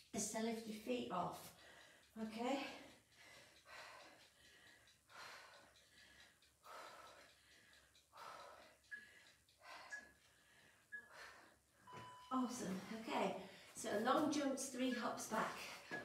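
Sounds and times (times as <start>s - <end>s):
woman breathing sharply: 1.4s - 2.1s, 2.7s - 12.0s.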